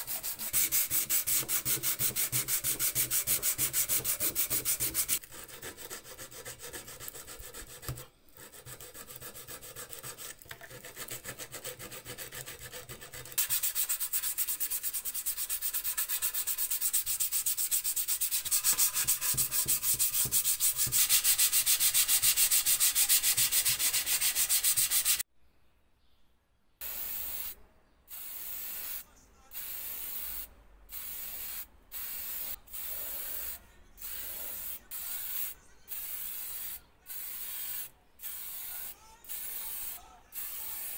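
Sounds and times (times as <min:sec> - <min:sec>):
sandpaper rubbing on metal: 0:00.0 - 0:25.2.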